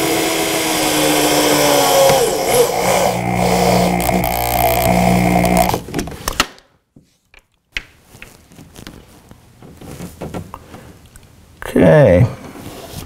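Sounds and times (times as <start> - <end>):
cordless drill motor: 0.0 - 5.9.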